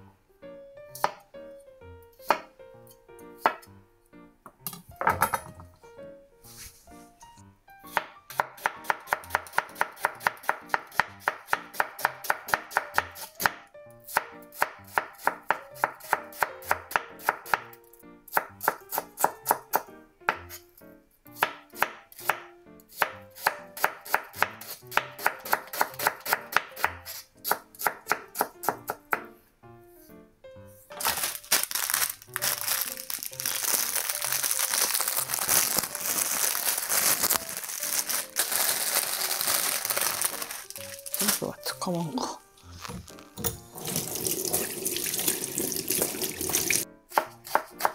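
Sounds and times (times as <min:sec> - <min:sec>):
knife chopping on cutting board: 0:02.2 - 0:02.5, 0:07.9 - 0:13.6, 0:18.3 - 0:20.6, 0:21.4 - 0:29.3, 0:42.7 - 0:44.1, 0:47.1 - 0:47.9
plastic bag crinkling: 0:30.9 - 0:41.8, 0:42.6 - 0:43.4.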